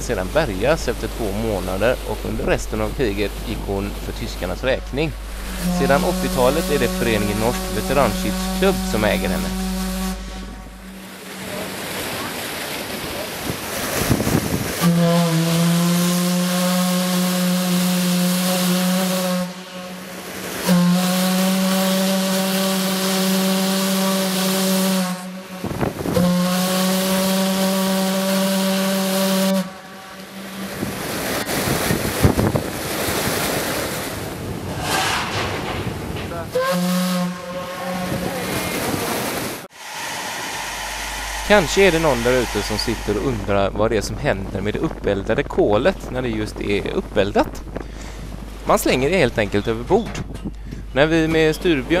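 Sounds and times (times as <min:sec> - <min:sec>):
steam whistle blasts: 0:04.0 - 0:12.4, 0:14.8 - 0:31.2, 0:36.5 - 0:38.6, 0:39.7 - 0:43.5
steam hissing: 0:39.7 - 0:43.7.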